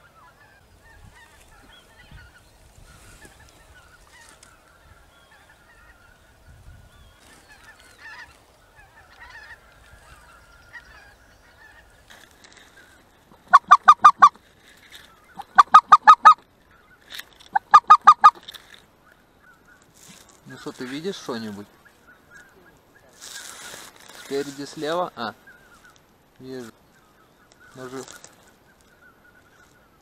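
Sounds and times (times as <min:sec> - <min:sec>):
geese honking: 0:00.0 - 0:06.4, 0:07.2 - 0:29.9.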